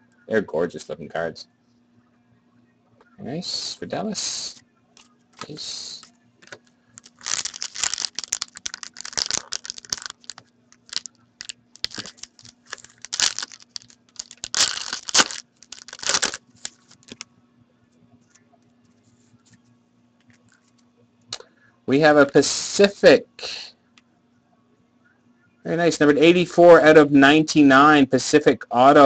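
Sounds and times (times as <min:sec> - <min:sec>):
foil wrapper crinkling and tearing: 0:07.0 - 0:17.2.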